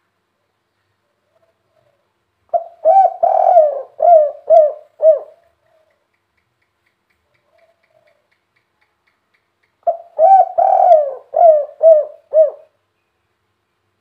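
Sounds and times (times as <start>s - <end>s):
dove cooing: 1.2s - 6.0s, 7.3s - 8.3s, 9.8s - 12.8s.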